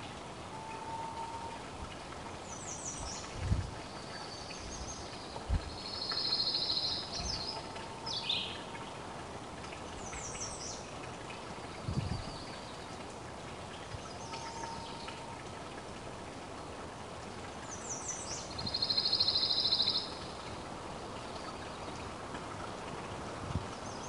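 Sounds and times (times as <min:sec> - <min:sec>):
outdoor background noise: 0:00.0 - 0:24.0
small birds singing: 0:03.9 - 0:08.8, 0:10.0 - 0:10.9, 0:13.8 - 0:15.4, 0:17.6 - 0:20.6.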